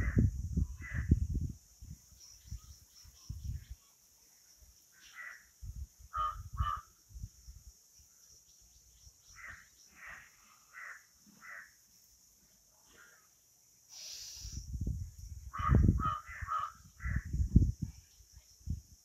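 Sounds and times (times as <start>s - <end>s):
crows cawing: 6.1s - 6.9s, 9.4s - 11.7s, 15.5s - 17.2s.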